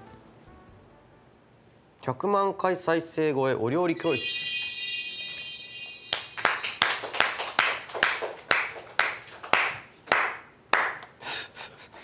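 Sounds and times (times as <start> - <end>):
chime: 4.0 - 6.7
slow hand clapping: 6.1 - 11.2.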